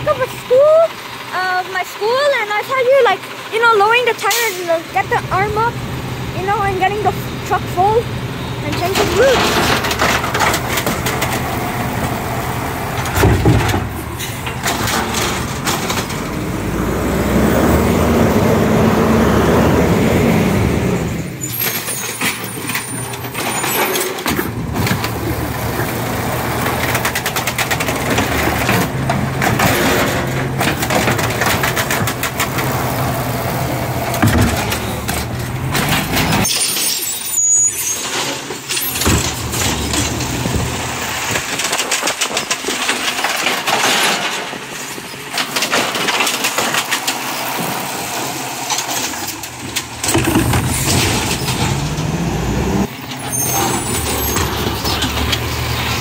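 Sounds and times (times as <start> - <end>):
garbage truck engine running: 0.0 - 56.0.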